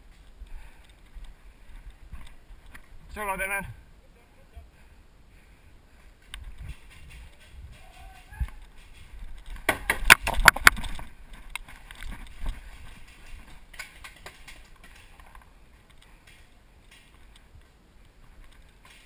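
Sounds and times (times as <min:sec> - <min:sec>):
rustling: 0:05.4 - 0:19.0.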